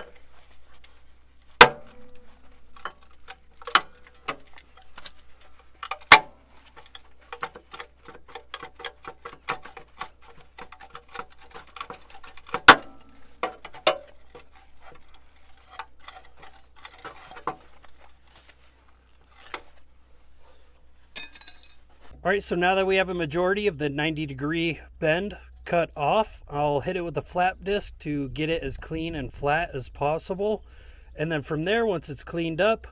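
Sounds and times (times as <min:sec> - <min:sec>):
sharp metal knocks: 0:01.6 - 0:04.8, 0:05.8 - 0:06.4, 0:07.3 - 0:14.5.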